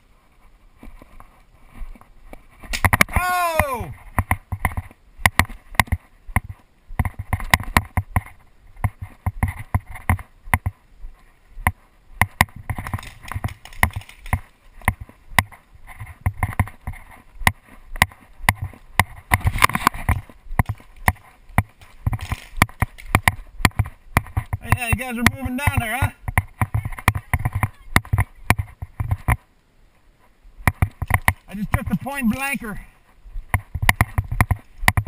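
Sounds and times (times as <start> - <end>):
footsteps on grass and sand: 8.0 - 29.2.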